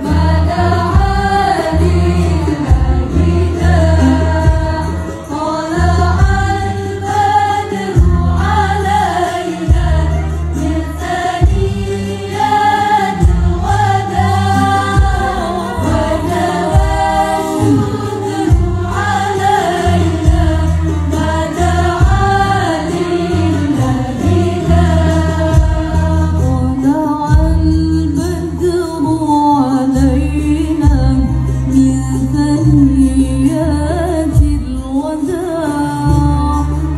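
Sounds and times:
women's choir singing: 0.0s - 28.7s
accompaniment with deep bass: 0.0s - 36.9s.

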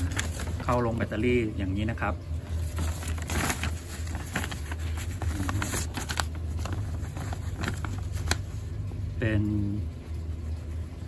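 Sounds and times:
paper rustling: 0.0s - 1.3s, 2.4s - 8.7s.

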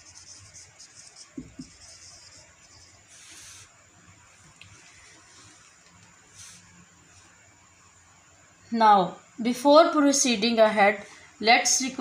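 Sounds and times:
marker pen squeaks: 0.0s - 3.7s
marker pen scratching on whiteboard: 0.0s - 3.8s, 4.4s - 7.3s.

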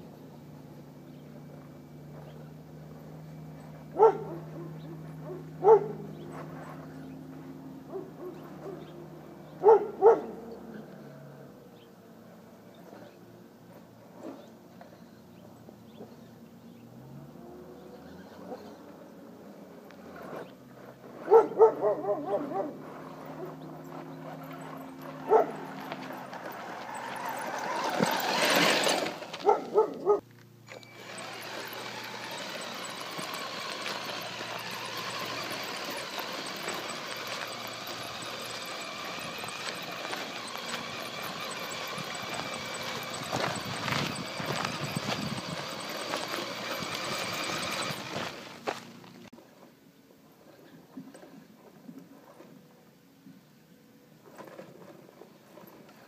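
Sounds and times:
dog barking: 4.0s - 6.0s, 9.6s - 10.4s, 21.2s - 22.8s, 25.2s - 25.7s, 29.4s - 30.2s
small electric motor whirring: 22.4s - 29.8s, 30.6s - 49.3s.

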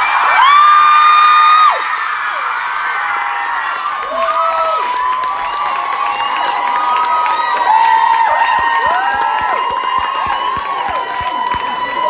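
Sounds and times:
audience cheering and screaming: 0.0s - 12.0s
clapping: 3.5s - 12.0s.

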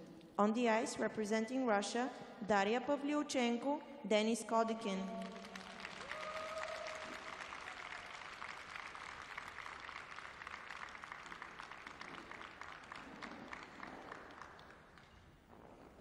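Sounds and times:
audience applauding: 5.2s - 15.2s.

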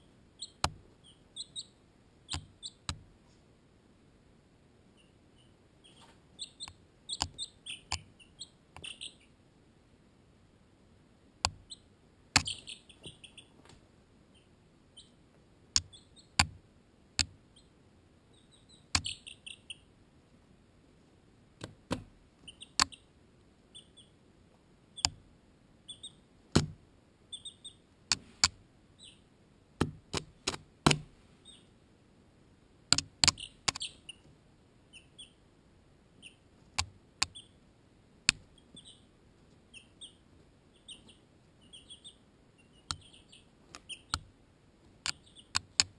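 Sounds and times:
chicks peeping: 0.0s - 3.4s, 4.9s - 9.4s, 11.5s - 13.7s, 14.3s - 16.5s, 17.4s - 19.9s, 22.4s - 24.2s, 25.8s - 29.3s, 31.4s - 31.7s, 33.2s - 35.4s, 36.1s - 37.6s, 38.3s - 44.3s, 44.9s - 45.9s
chicks pecking at camera: 2.3s - 3.0s, 5.0s - 9.3s, 11.6s - 13.5s, 18.6s - 19.8s, 44.9s - 45.9s.

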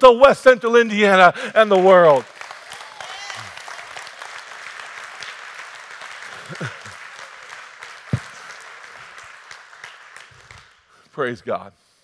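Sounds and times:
congregation applauding: 0.2s - 11.0s.

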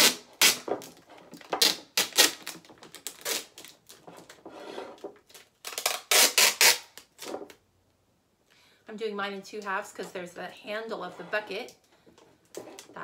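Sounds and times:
packing tape ripping off dispenser: 0.0s - 4.0s, 5.3s - 7.3s.

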